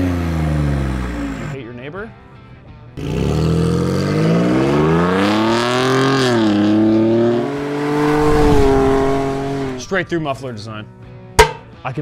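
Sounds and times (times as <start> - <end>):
engine accelerating hard: 3.0 - 10.1
exhaust note rising in pitch: 3.0 - 10.2.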